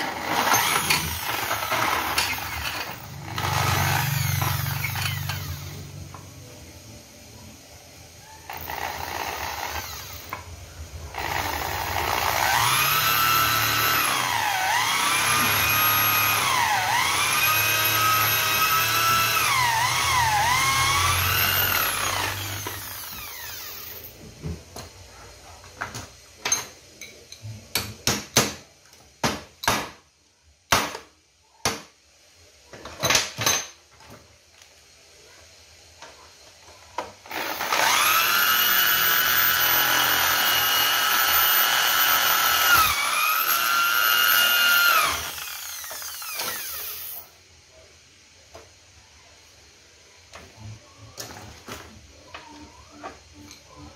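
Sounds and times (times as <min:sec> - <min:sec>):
power drill drilling into metal: 0:00.0 - 0:05.8, 0:08.5 - 0:10.4, 0:11.2 - 0:24.1, 0:37.3 - 0:47.3.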